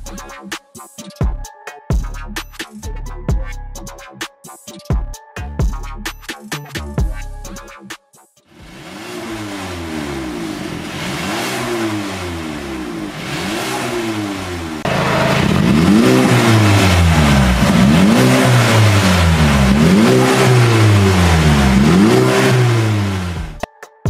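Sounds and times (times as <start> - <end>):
car engine revving: 8.6 - 23.6.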